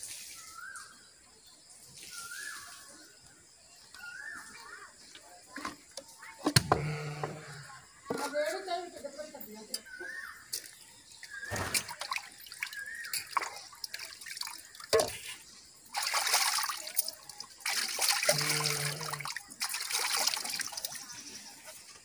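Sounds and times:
water splashing in a pail: 10.6 - 21.9.

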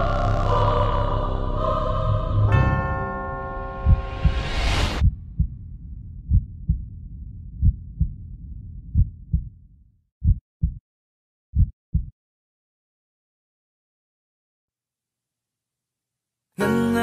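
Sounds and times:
low rumble: 0.0 - 10.4
heartbeat thumps: 3.8 - 10.8, 11.6 - 12.1.

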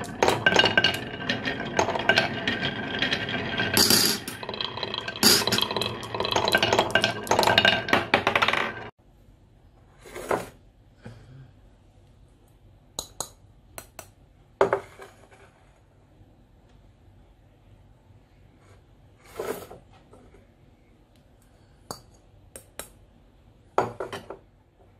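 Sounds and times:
marbles rattling down wooden track: 0.0 - 8.9.

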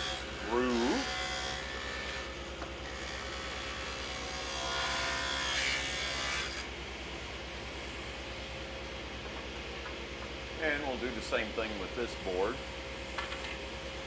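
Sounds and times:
saw blade cutting wood: 0.0 - 6.7
table saw running: 0.0 - 6.7.

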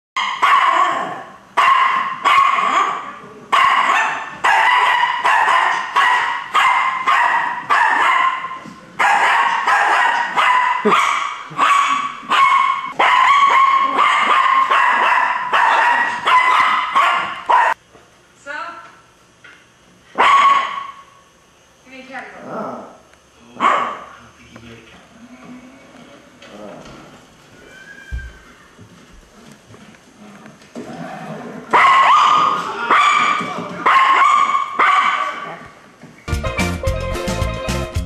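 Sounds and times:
small dog barking: 0.2 - 17.8, 20.2 - 21.0, 23.6 - 24.1, 31.7 - 35.6.

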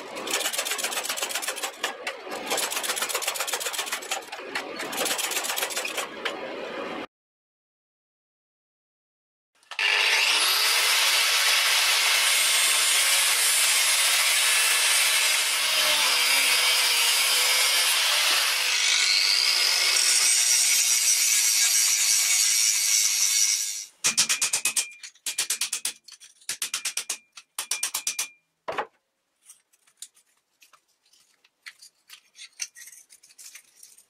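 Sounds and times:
angle grinder grinding steel: 9.7 - 23.9.

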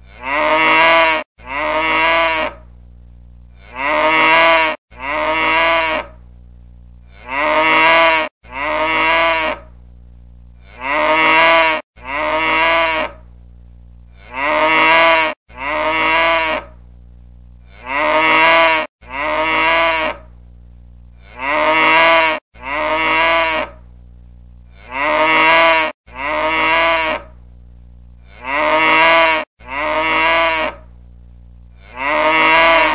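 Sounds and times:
cow mooing: 0.1 - 2.6, 3.6 - 6.1, 7.1 - 9.7, 10.6 - 13.2, 14.2 - 16.7, 24.8 - 27.3, 28.3 - 30.8, 31.8 - 32.9
faint steady hum: 1.4 - 4.2, 4.9 - 7.7, 8.4 - 11.2, 12.0 - 14.7, 15.5 - 18.3, 19.0 - 21.8, 22.6 - 25.3, 26.1 - 28.8, 29.6 - 32.4.

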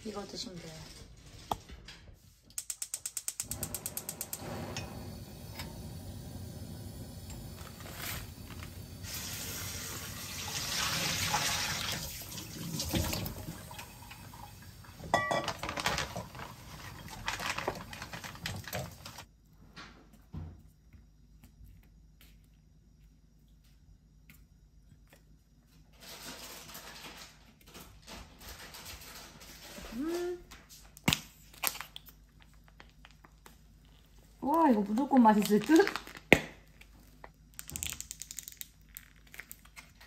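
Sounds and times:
gas stove igniter clicking: 2.5 - 6.6
cookware clink: 15.1 - 15.6.

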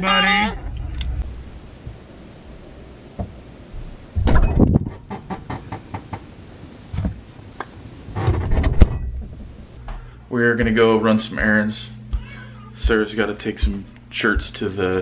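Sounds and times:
items rustling and clattering: 8.1 - 9.8.

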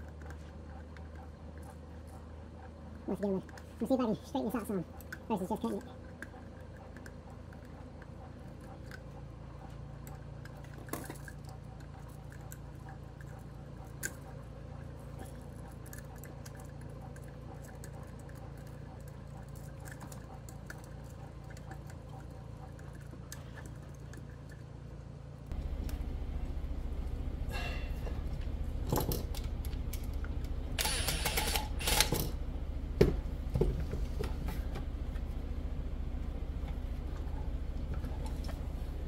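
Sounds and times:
steady low hum: 0.0 - 39.0
wire handling noises: 25.5 - 30.6.

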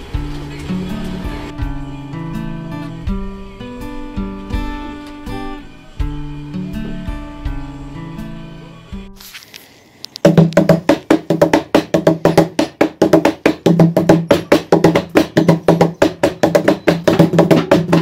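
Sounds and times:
hands drumming on plastic buckets: 10.2 - 18.0.

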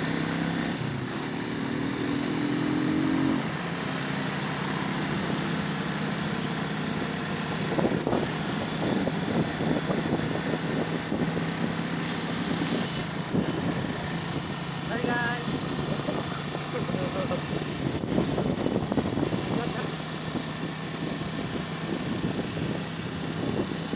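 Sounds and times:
motorcycle engine running: 0.0 - 23.9
wind buffeting microphone: 7.6 - 23.9.

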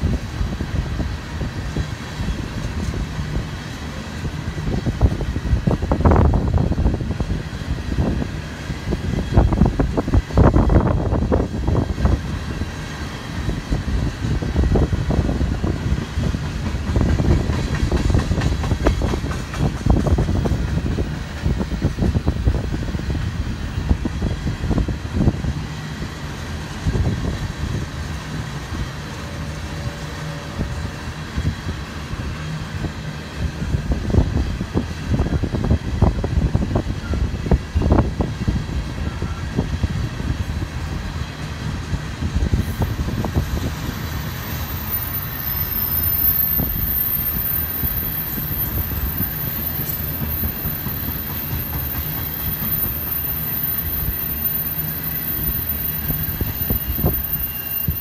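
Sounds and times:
wind buffeting microphone: 0.0 - 45.4
freight train rumbling: 0.0 - 58.0
wheels clicking over rail joints: 15.9 - 22.2
thin high whine: 52.4 - 58.0.

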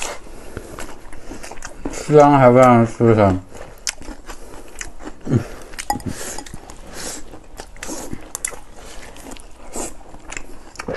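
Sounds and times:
people chewing food: 0.0 - 10.9
chopsticks tapping glass bowls: 5.8 - 6.6.

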